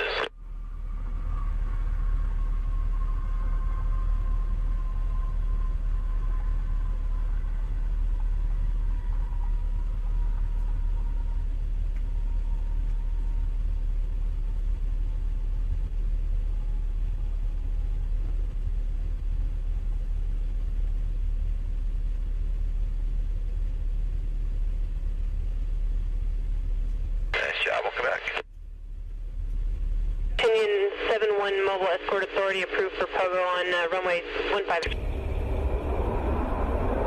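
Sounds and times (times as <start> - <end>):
faint jet whine falling in pitch: 0.0 - 20.2, 29.6 - 37.0
distant jet engine rumble: 0.0 - 37.0.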